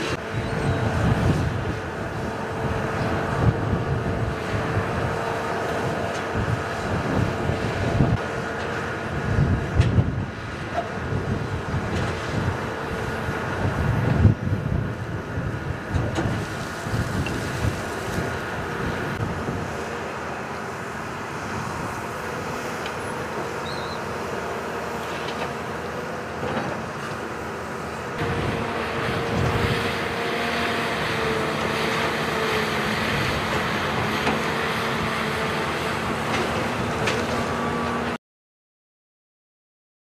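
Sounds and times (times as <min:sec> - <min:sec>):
excavator diesel engine with whine: 0:00.0 - 0:38.2
wind buffeting microphone: 0:00.1 - 0:20.0, 0:20.9 - 0:23.9, 0:28.2 - 0:35.3.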